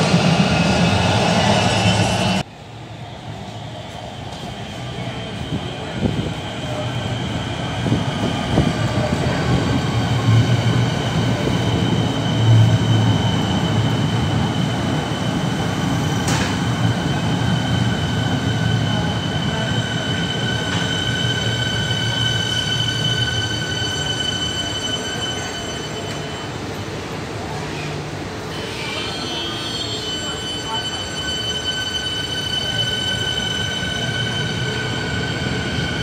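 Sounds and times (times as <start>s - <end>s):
train wheels rumbling on rail: 3.3s - 36.0s
high-pitched train tones: 10.0s - 26.8s, 28.5s - 36.0s.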